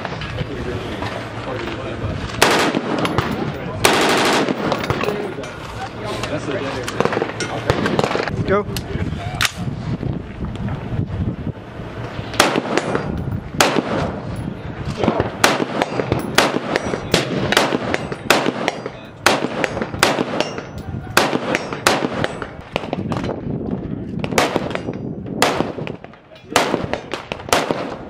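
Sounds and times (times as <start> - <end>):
rifle shots cracking: 2.3 - 5.2, 6.8 - 8.3, 12.4 - 14.3, 15.0 - 23.3, 24.2 - 28.0.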